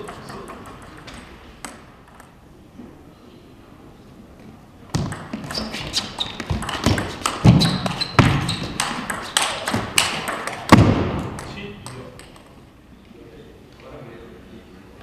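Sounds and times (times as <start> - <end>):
footsteps thudding and squeaking: 5.0 - 9.9
table tennis ball clicks: 5.0 - 12.6.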